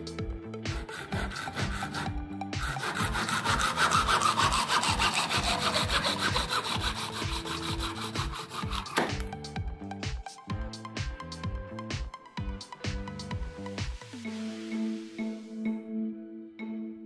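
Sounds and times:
hacksaw cutting metal tube: 0.7s - 9.4s.

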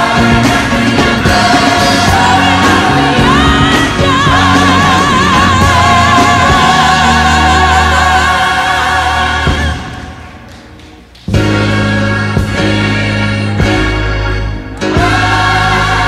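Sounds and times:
lead voice singing with vibrato: 0.0s - 10.4s
gospel choir singing: 0.0s - 10.6s, 11.3s - 16.0s
instrumental backing: 0.0s - 16.0s.

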